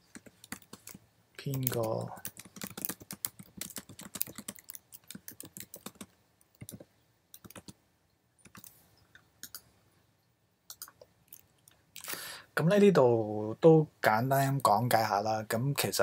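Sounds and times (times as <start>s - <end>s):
typing on computer keyboard: 0.0s - 7.8s, 8.4s - 8.7s.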